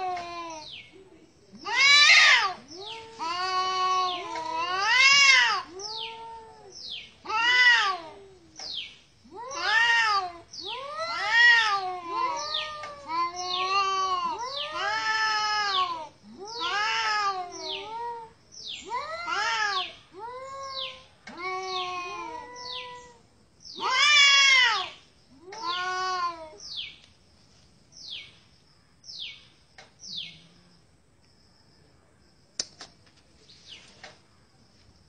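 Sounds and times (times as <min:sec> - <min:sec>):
cats yowling: 0:00.0 - 0:00.7, 0:01.6 - 0:08.6, 0:09.2 - 0:23.2, 0:23.8 - 0:26.6.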